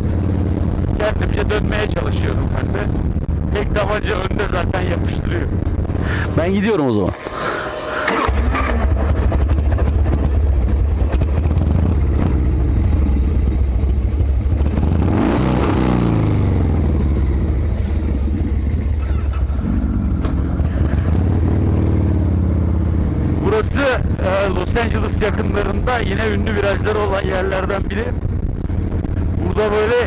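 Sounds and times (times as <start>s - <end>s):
wind rumble on microphone: 0.0s - 6.4s, 23.9s - 30.0s
motorcycle engine: 0.0s - 30.0s.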